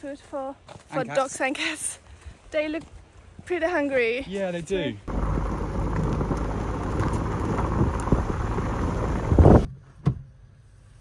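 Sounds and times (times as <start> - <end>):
wind buffeting microphone: 5.1 - 9.7.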